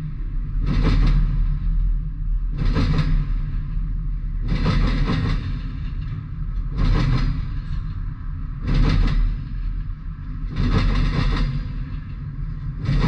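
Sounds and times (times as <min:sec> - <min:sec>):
freight train rumble: 0:00.0 - 0:13.0
wheels clattering over rail joints: 0:04.4 - 0:13.0.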